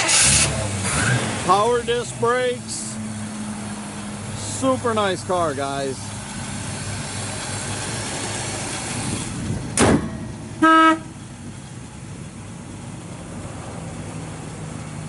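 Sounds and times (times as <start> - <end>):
car hood shutting with a thud: 9.8 - 10.3
car horn toot: 10.6 - 11.2.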